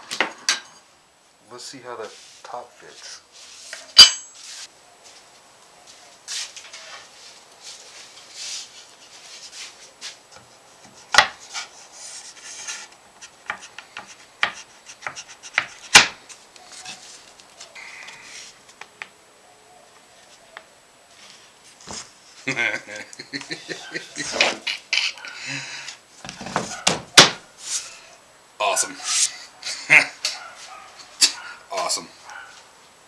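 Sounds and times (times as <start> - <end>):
wood rubbing on wood: 8.4 - 18.7.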